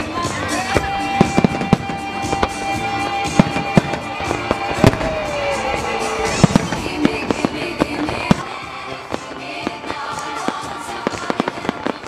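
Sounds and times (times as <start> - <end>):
fireworks bangs: 0.0 - 12.0
music: 0.0 - 12.0.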